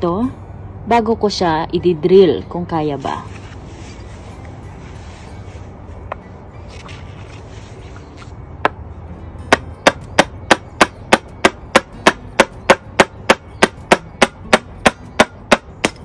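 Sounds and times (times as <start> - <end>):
hammer tapping steel punch: 9.5 - 16.0.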